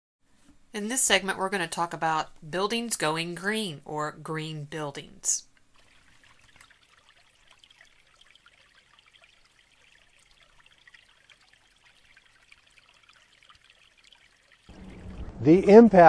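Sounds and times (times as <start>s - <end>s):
stream trickling over stones: 5.7s - 15.4s.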